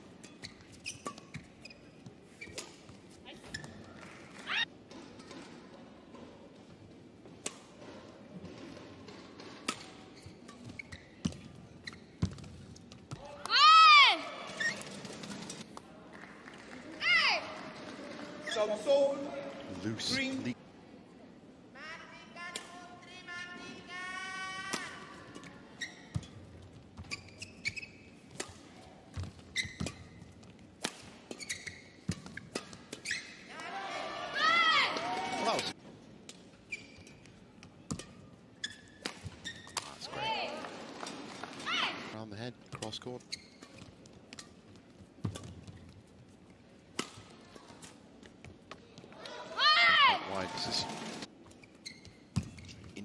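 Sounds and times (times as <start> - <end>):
shoes squeaking on court floor: 0.0 - 13.4, 14.3 - 15.6, 17.8 - 20.6, 25.4 - 33.6, 35.4 - 49.1, 50.3 - 53.0
racket striking shuttlecock: 30.8 - 33.2, 39.0 - 40.0, 46.9 - 48.0
rackets striking shuttlecock: 38.9 - 40.0, 43.6 - 46.0, 46.9 - 48.8.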